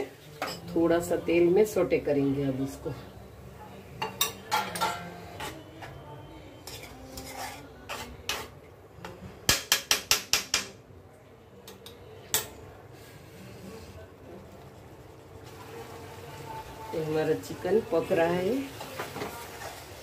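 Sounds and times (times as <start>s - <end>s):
spatula scraping and knocking pan: 6.6s - 8.5s.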